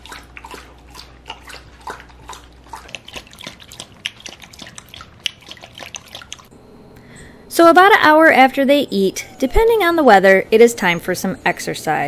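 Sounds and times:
dog lapping water: 0.0 - 6.5.

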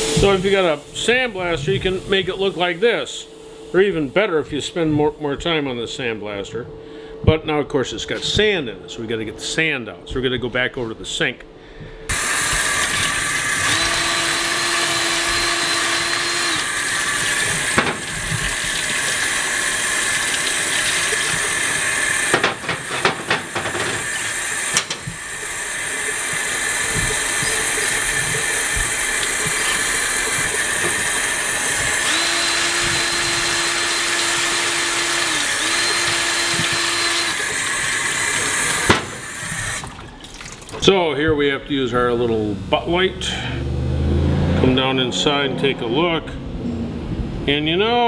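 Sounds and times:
tap water running into sink: 12.1 - 40.8
metal cylinder knocking and scrubbing: 22.3 - 25.2.

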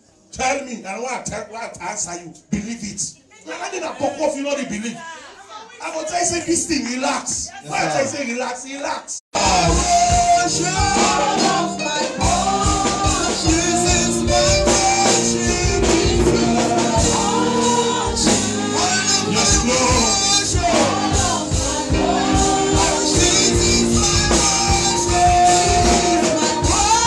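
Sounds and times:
church band with keyboard and drums: 9.3 - 27.0
voices singing gospel: 9.3 - 27.0.

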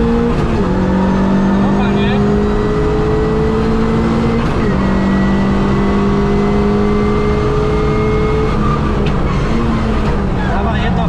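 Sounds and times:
car engine running hard: 0.0 - 11.0.

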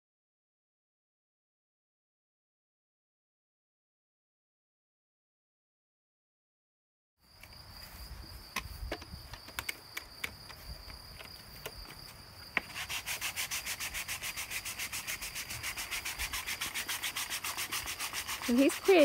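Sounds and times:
rapid even rasping: 12.6 - 19.0.

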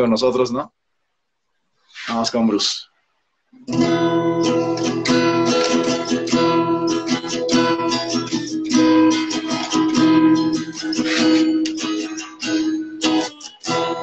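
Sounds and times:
acoustic guitar strumming chords: 3.7 - 14.0.

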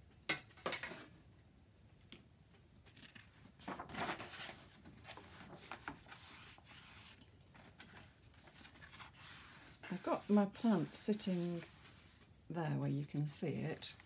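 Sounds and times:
paper page turning: 2.9 - 10.4
hand rubbing paper: 5.4 - 7.2, 8.4 - 12.3.

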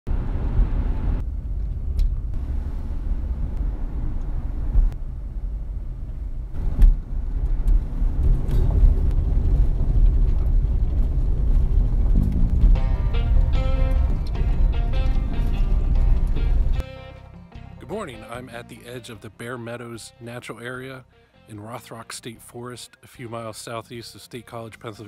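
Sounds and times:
car road and engine rumble: 0.1 - 16.8.

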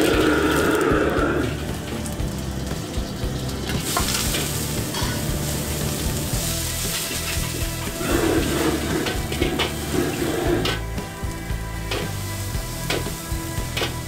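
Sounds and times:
flames flaring up: 0.0 - 13.7
noodles sizzling in a wok: 0.0 - 14.0
metal ladle scraping a wok: 6.3 - 10.9.

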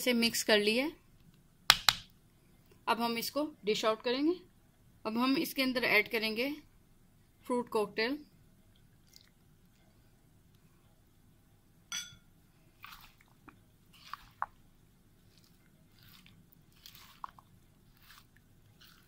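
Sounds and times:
faint wet squelches: 8.3 - 11.2, 12.5 - 19.0
glass bowl clinking: 11.9 - 12.3.

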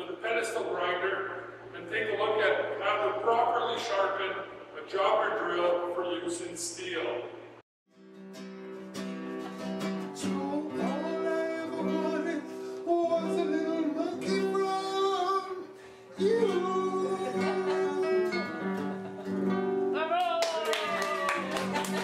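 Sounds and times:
guitar accompaniment: 7.9 - 22.0
person singing: 10.2 - 19.2.

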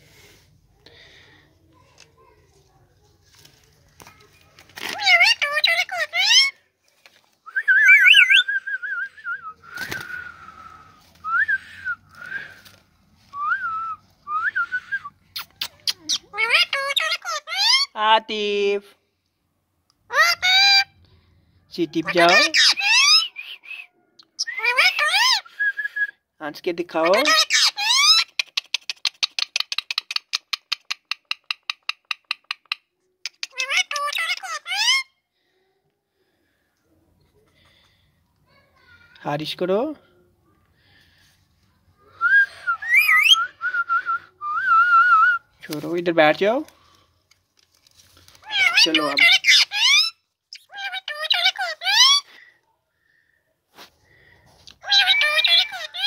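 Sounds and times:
parakeet whistling: 7.6 - 8.5, 42.8 - 43.5.

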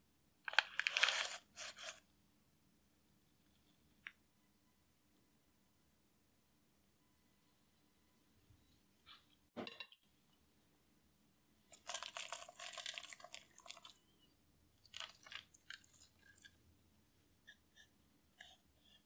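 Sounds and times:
crumbs pattering onto batter: 11.7 - 14.0, 14.8 - 16.6.

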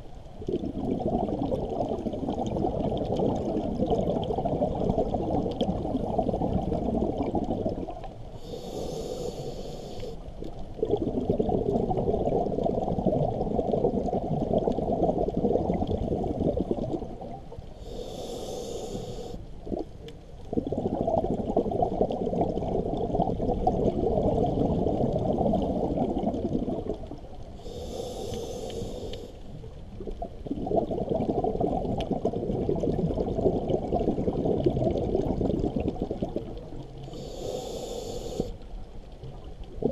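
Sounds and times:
bubbling exhale: 0.4 - 19.9, 20.5 - 38.6
hissing regulator inhales: 8.4 - 10.2, 17.8 - 19.4, 27.6 - 29.5, 37.1 - 38.6.

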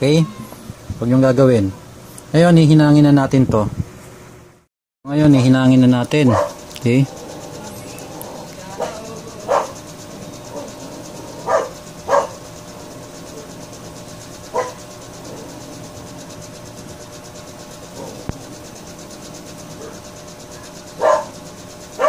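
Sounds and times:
dog barking: 6.2 - 9.8, 10.5 - 12.4, 14.5 - 15.6, 18.0 - 18.3, 19.8 - 20.0, 20.6 - 21.4.

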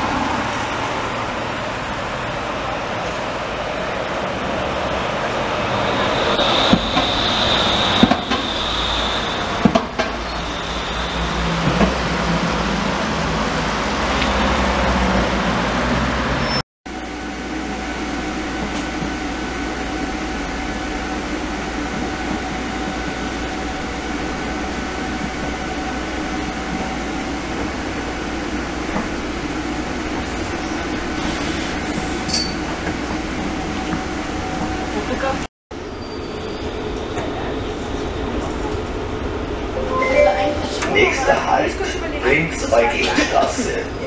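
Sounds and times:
trolleybus passing: 0.0 - 44.0.

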